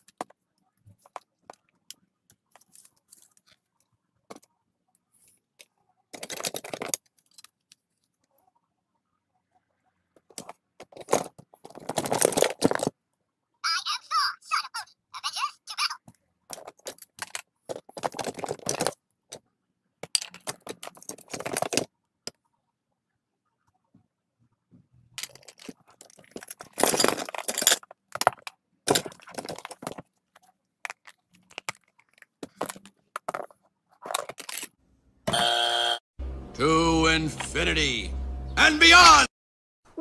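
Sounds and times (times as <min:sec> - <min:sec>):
plastic toys clattering: 0:00.0 - 0:04.5, 0:05.6 - 0:08.3, 0:10.2 - 0:13.0, 0:16.0 - 0:22.4, 0:25.1 - 0:34.8.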